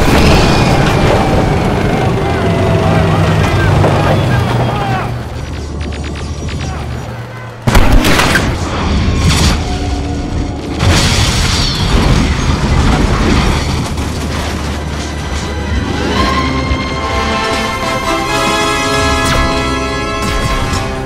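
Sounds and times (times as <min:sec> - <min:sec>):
background music: 0:14.3 - 0:21.0.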